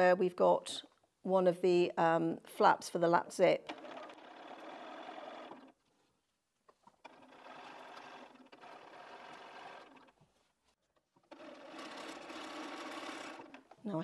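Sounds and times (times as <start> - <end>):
sewing machine stitching: 3.6 - 5.8, 7.0 - 10.2, 11.2 - 14.0.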